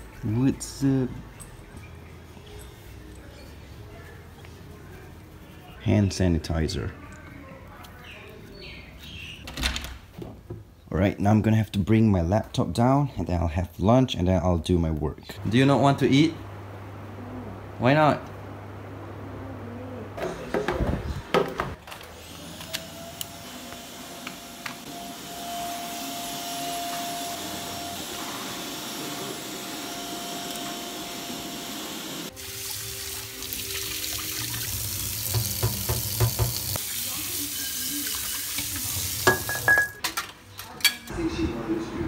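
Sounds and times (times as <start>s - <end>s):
water running from tap: 32.3s - 39.9s.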